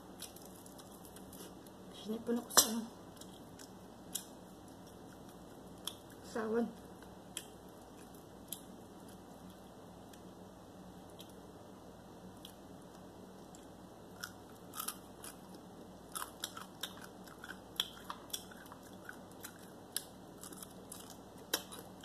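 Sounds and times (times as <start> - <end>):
fried chicken crunching: 14.2 - 22.0.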